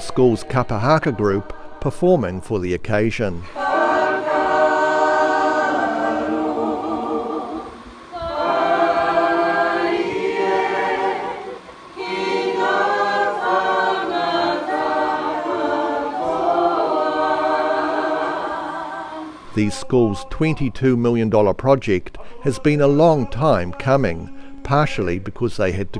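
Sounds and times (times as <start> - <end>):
group singing unaccompanied: 0.0 - 2.6, 3.4 - 20.5.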